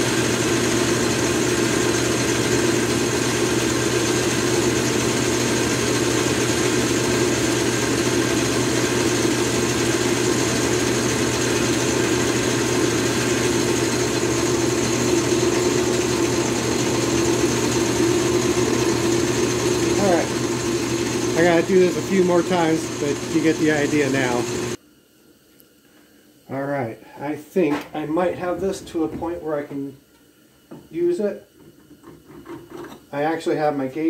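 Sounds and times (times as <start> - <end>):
metal lathe humming: 0.0 - 24.8.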